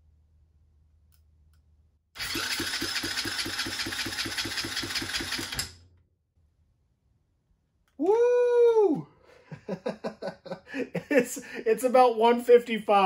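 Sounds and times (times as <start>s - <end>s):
electric starter cranking engine: 2.2s - 5.9s.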